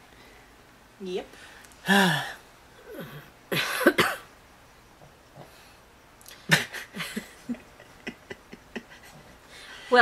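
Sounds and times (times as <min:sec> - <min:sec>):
breathy laughter: 0:06.4 - 0:09.7.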